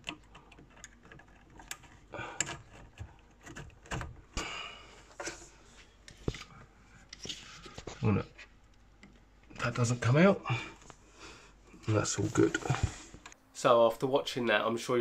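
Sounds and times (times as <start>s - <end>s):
small clicks and knocks on pipework: 0.0s - 4.2s, 8.6s - 9.7s.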